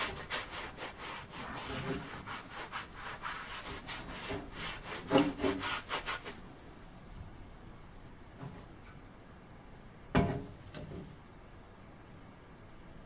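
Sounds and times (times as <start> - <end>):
wire brush scrubbing metal: 0.0 - 6.4.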